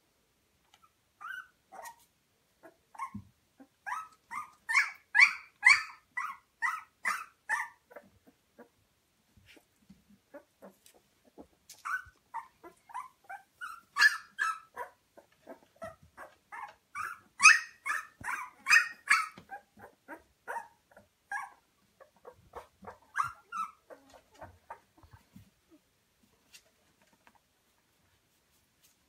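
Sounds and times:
puppies squeaking and whimpering: 1.2s - 2.0s, 2.6s - 8.1s, 10.3s - 24.9s.

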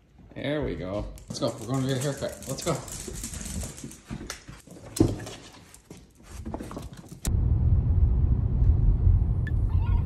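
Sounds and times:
dog claws clicking on floor: 0.9s - 7.3s.

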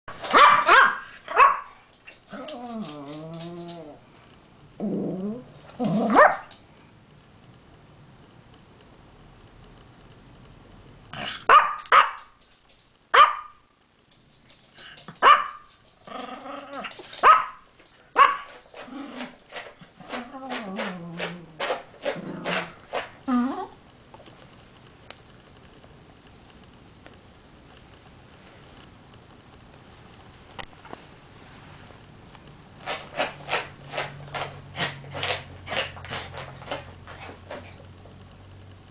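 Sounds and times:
dog grumbling warbles: 2.2s - 4.0s, 4.8s - 6.2s, 16.0s - 17.1s, 18.7s - 23.8s
dog claws scraping wooden floor: 14.1s - 23.2s, 32.8s - 37.8s.

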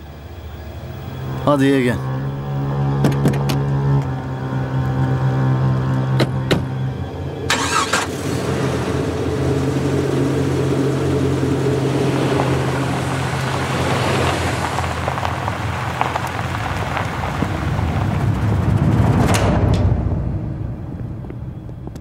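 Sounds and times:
car engine humming: 0.0s - 22.0s
tyres rolling over cobblestones: 9.0s - 22.0s.

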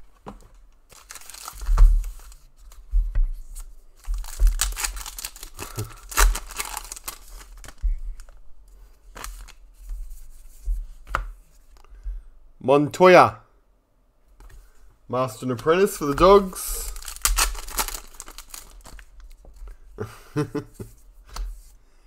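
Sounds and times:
wrappers crinkling: 0.9s - 2.4s, 4.0s - 8.4s, 16.0s - 19.5s.

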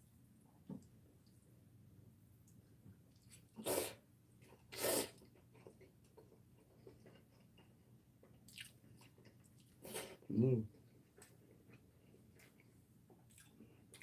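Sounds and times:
chewing: 4.4s - 14.0s
noodles being slurped: 4.7s - 5.3s.

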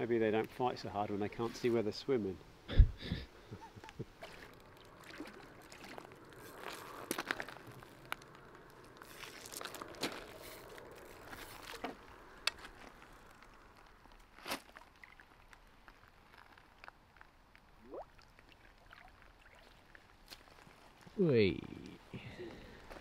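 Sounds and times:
footsteps on dry leaves: 8.9s - 13.8s.

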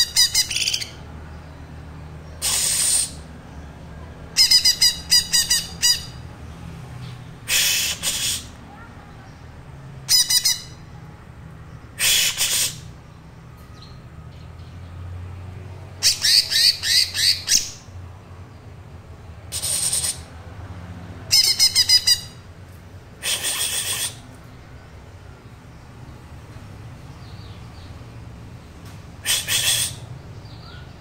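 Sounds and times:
young bird calling: 2.4s - 3.2s, 7.5s - 8.6s, 12.0s - 12.9s, 21.3s - 22.4s, 23.2s - 24.2s, 29.2s - 30.8s.

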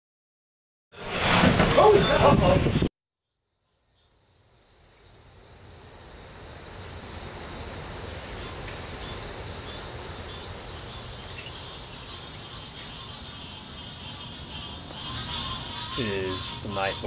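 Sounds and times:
insects shrilling: 4.7s - 17.0s.

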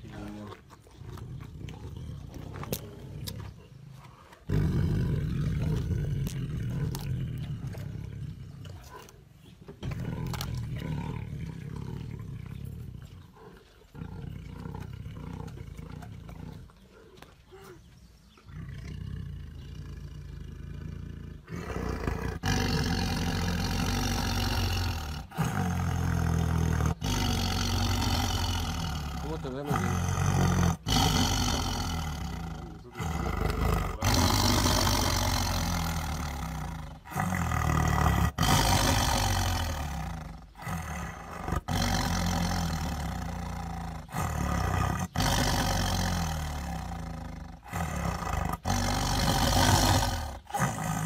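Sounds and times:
tiger growling: 0.0s - 51.0s
chewing cracks: 5.6s - 9.2s.

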